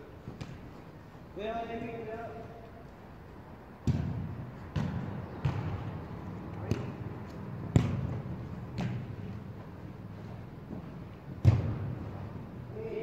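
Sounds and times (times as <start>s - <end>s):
football kick thuds echoing: 3.8s - 9.5s, 10.7s - 12.4s.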